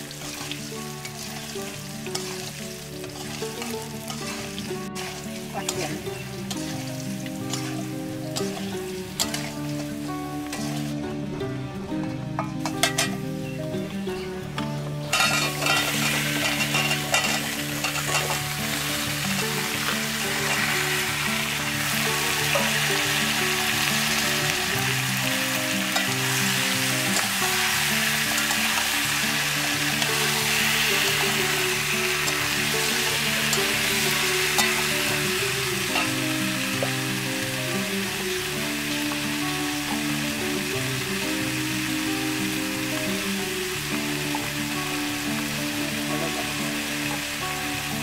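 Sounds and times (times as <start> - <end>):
vegetables sizzling in hot oil: 0.0 - 48.0
metal spatula scraping wok: 2.1 - 6.9, 7.5 - 9.6, 12.6 - 13.2, 15.1 - 19.6.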